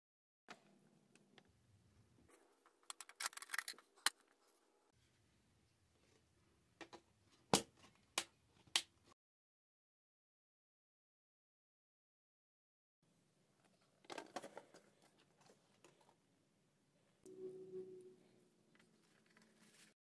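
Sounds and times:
plastic parts rattling: 2.7 - 4.3, 13.9 - 16.1.

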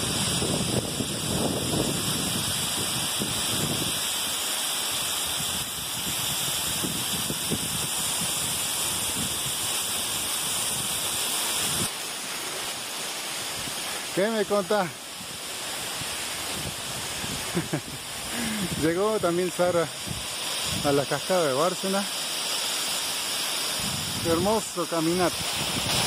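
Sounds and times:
wind buffeting microphone: 0.0 - 4.0, 19.9 - 20.8, 23.8 - 24.6, 25.3 - 26.0
waterfall rushing: 0.0 - 26.0.

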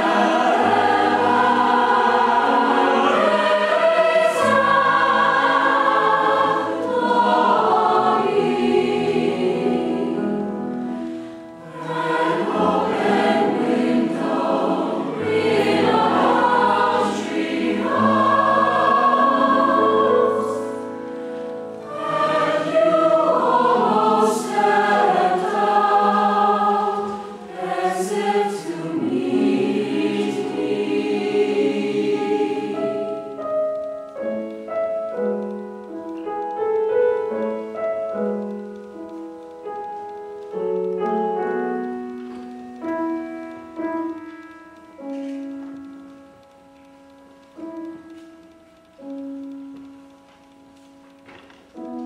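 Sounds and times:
choir singing: 0.0 - 21.2, 21.8 - 33.8.

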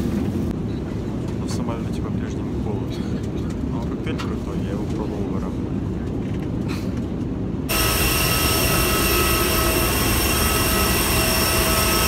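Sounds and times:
airliner cabin rumble: 0.0 - 12.0
jet engines whining: 7.6 - 12.0.

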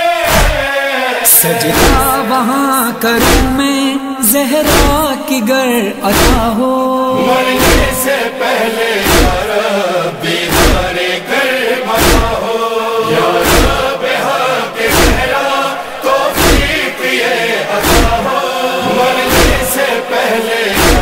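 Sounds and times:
voices chanting together: 0.0 - 21.0
solo voice singing verses: 0.8 - 10.4
slow heavy thumps: 9.0 - 9.5, 10.5 - 11.0, 12.0 - 12.4, 13.2 - 13.9, 14.9 - 15.3, 16.4 - 16.8, 17.8 - 19.7, 20.8 - 21.0.

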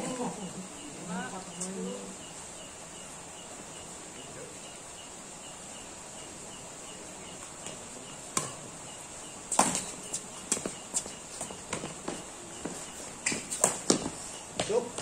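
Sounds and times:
insects chirping: 0.0 - 15.0
rackets hitting shuttlecock: 7.6 - 8.6, 9.5 - 10.7, 13.2 - 14.7
shoe steps on hard court: 9.5 - 15.0.

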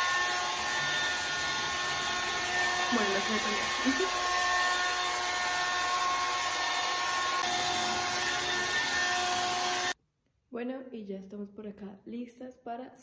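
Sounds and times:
hair dryer blowing: 0.0 - 10.0.

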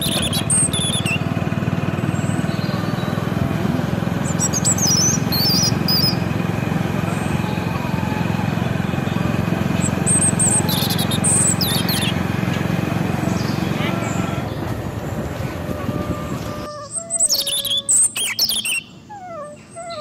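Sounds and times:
high bird chirps: 0.0 - 1.4, 4.1 - 6.3, 7.1 - 12.3, 13.1 - 20.0
vehicle engine running: 0.0 - 19.1.

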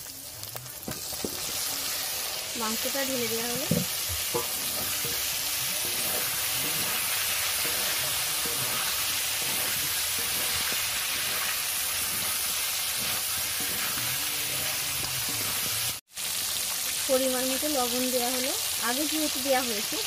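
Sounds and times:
chicken frying in hot oil: 0.0 - 20.0
metal spatula stirring: 0.8 - 16.0.

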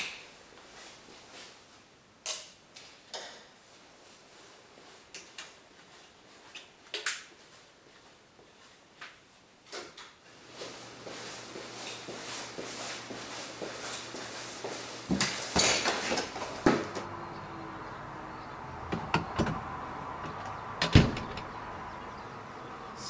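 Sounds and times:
footsteps on hard floor: 10.5 - 17.0
door shutting and locking: 20.2 - 21.5.

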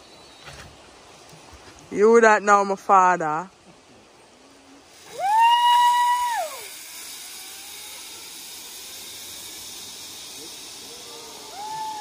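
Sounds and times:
steady hiss: 0.0 - 12.0
woman screaming: 5.1 - 6.7, 11.4 - 12.0.

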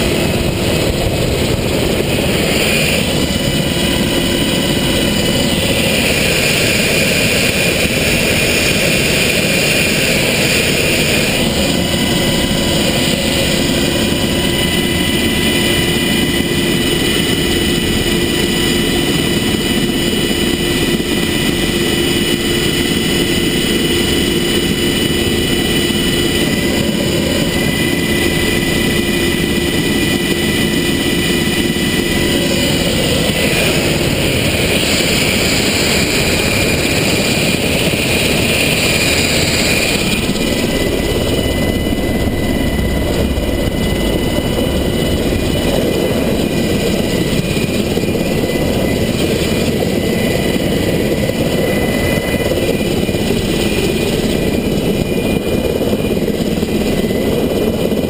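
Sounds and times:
helicopter turbine whine: 0.0 - 58.0.

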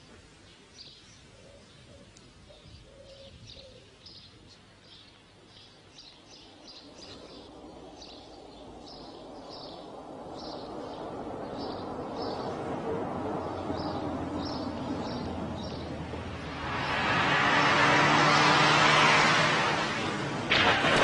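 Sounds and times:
small birds chirping: 0.0 - 18.5
low rushing noise: 6.4 - 21.0.

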